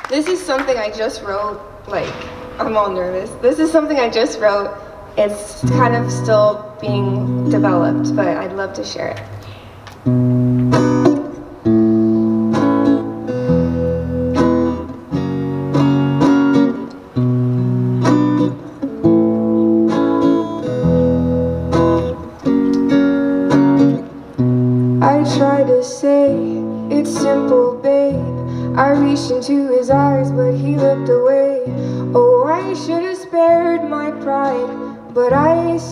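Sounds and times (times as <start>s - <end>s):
woman singing: 0.3s - 9.2s, 25.0s - 35.9s
acoustic guitar strumming: 0.8s - 9.2s, 10.0s - 35.9s.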